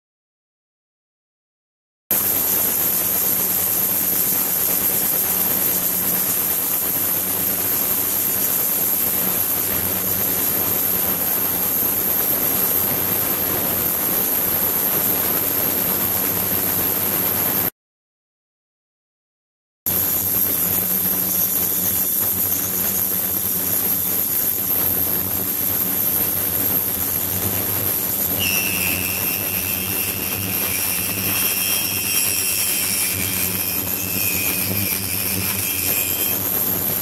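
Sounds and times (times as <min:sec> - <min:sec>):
high-pitched whine: 0:19.9 - 0:37.0
agitated water hissing: 0:28.0 - 0:36.1.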